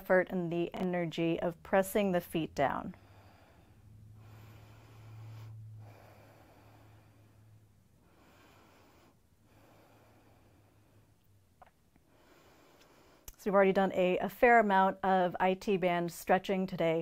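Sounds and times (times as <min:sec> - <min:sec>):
low steady hum: 0:00.0 - 0:17.0
slow breathing close up: 0:02.7 - 0:13.3.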